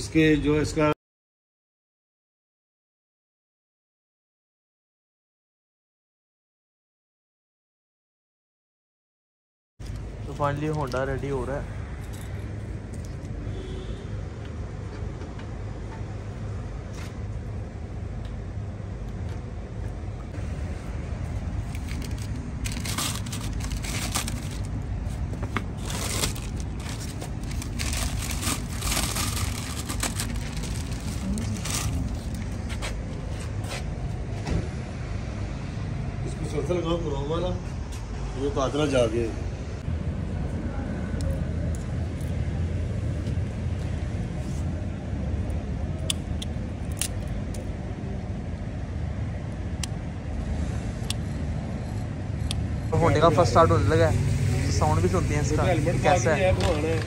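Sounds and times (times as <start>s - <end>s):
steady low rumble: 16.1s - 34.4s, 39.4s - 53.0s
low background rumble: 17.5s - 33.3s
plastic wrapping crinkling: 21.7s - 32.6s.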